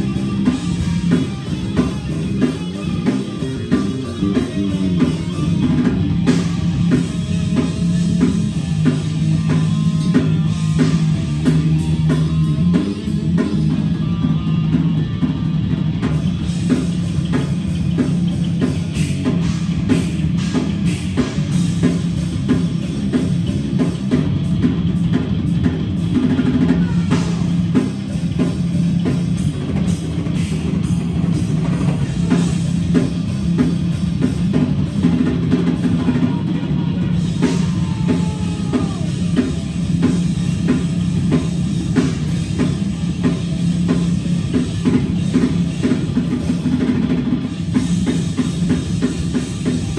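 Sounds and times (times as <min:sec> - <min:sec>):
bass drum and cymbal hits: 0:00.0 - 0:49.9
electric guitar riff: 0:00.0 - 0:49.9
heavy metal band playing live: 0:00.0 - 0:49.9.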